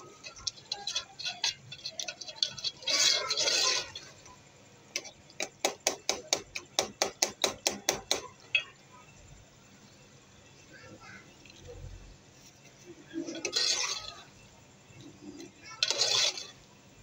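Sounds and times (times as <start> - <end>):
metal spoon scraping a metal pot: 0.0 - 8.2, 12.9 - 17.0.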